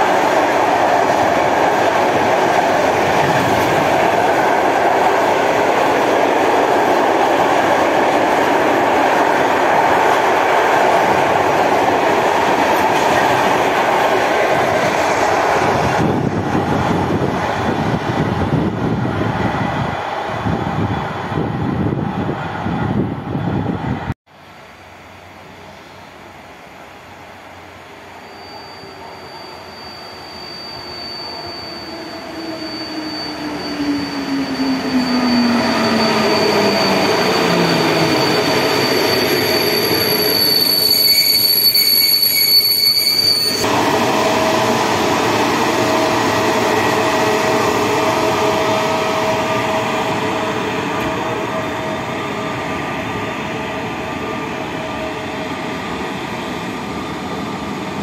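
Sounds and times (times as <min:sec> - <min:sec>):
standing train hum: 0:00.0 - 0:58.0
train brakes squealing: 0:27.2 - 0:58.0
train tone falling in pitch: 0:27.6 - 0:52.8.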